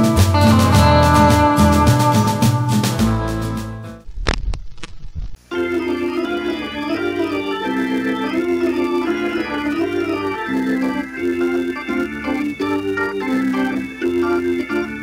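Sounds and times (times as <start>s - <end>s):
organ music: 0.0s - 4.0s, 5.5s - 15.0s.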